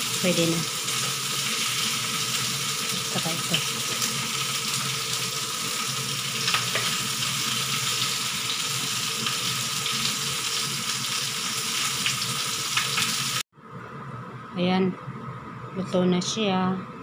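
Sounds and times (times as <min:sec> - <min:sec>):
faint hum: 0:13.6 - 0:17.0.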